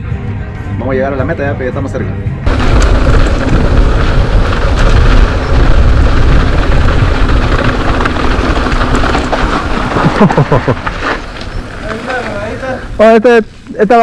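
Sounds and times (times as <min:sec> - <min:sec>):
wind rushing over microphone: 0:02.4 - 0:13.6
tyres rumbling on dirt trail: 0:02.4 - 0:14.0.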